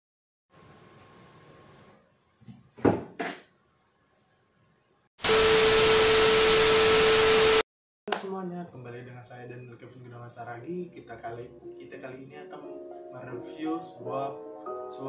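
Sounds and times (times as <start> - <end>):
loud static hiss: 5.2 - 7.6.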